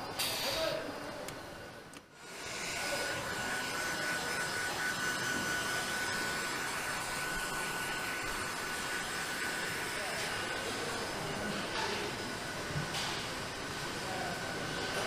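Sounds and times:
electric blower rushing air: 2.2s - 14.0s
thin high whine: 2.2s - 15.0s.

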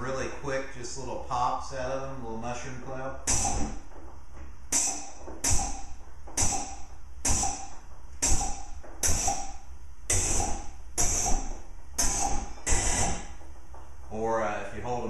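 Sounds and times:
gas flame bursts: 3.2s - 3.8s, 4.7s - 13.4s.

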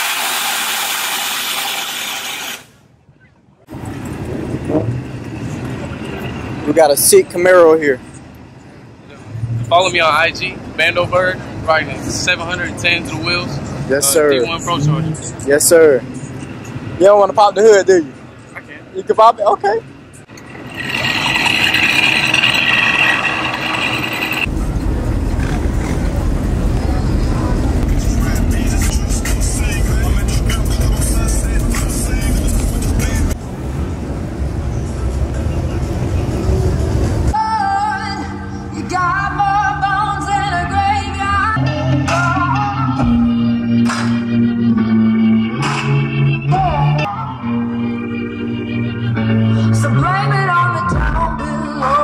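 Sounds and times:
loud steady hiss: 0.0s - 2.7s
car engine running: 19.9s - 37.4s.

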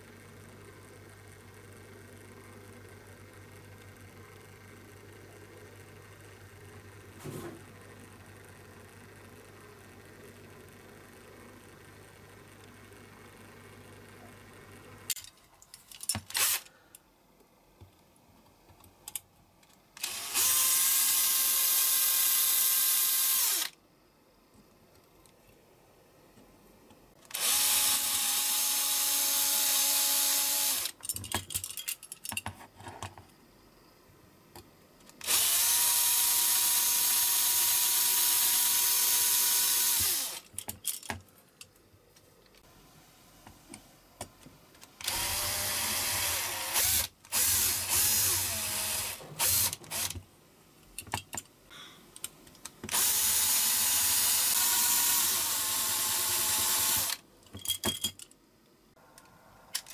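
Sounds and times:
cordless drill whine: 16.4s - 16.7s, 20.0s - 23.8s, 27.3s - 30.9s, 35.2s - 40.4s, 45.0s - 50.2s, 52.9s - 57.2s.

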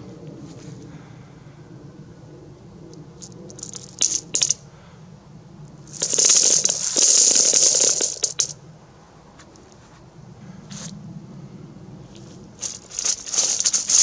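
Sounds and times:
coins clinking into metal bucket: 3.5s - 4.6s, 5.9s - 8.6s, 12.6s - 14.0s
jingling cascade of coins: 3.6s - 4.6s, 5.9s - 8.5s, 12.6s - 14.0s.

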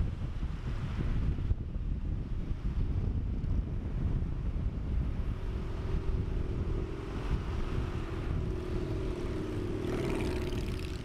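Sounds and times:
wind and traffic rumble: 0.0s - 11.0s
vehicle engine passing: 5.0s - 11.0s.

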